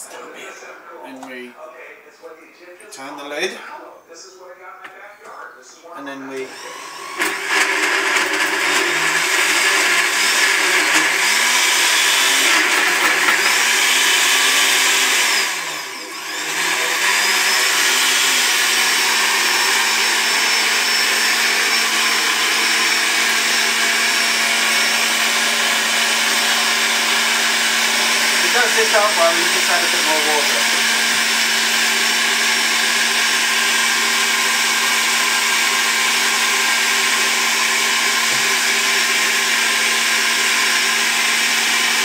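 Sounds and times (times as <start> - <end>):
blender running: 6.1 - 42.0.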